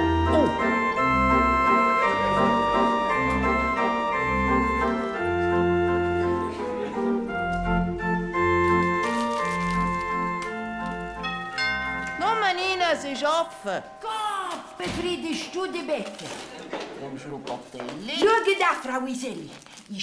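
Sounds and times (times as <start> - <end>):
organ-like keyboard chords: 0.0 - 12.2.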